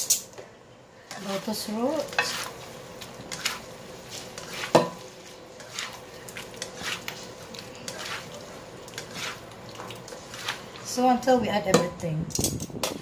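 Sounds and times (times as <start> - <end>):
spatula scraping in a wok: 1.1 - 11.4.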